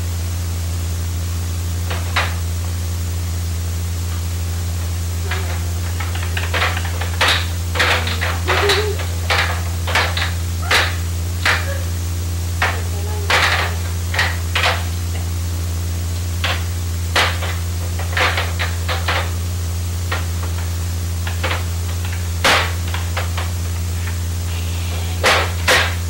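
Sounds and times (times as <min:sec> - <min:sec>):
plastic toy clicks and knocks: 0:05.3 - 0:11.7, 0:12.6 - 0:14.8.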